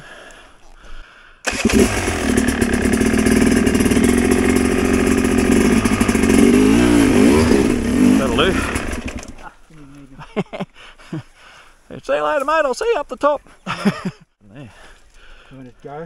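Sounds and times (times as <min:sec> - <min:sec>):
dirt bike engine starting and running: 0:01.4 - 0:09.6.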